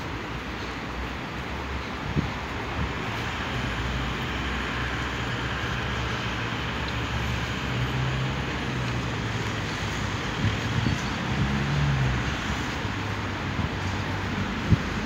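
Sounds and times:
city traffic noise: 0.0s - 15.0s
tram humming: 0.0s - 15.0s.

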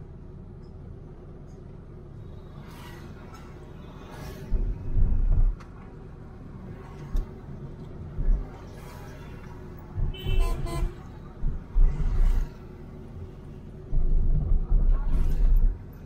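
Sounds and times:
car engine and road hum: 0.0s - 16.0s
low rumbling thumps: 4.5s - 5.6s, 11.2s - 12.5s, 13.8s - 15.8s
car horn toot: 10.1s - 11.0s.

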